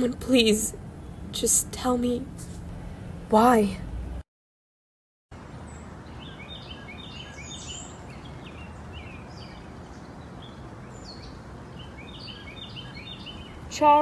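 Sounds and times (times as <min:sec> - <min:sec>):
outdoor ambience hiss: 0:00.0 - 0:04.2, 0:05.3 - 0:14.0
small birds chirping: 0:05.4 - 0:14.0.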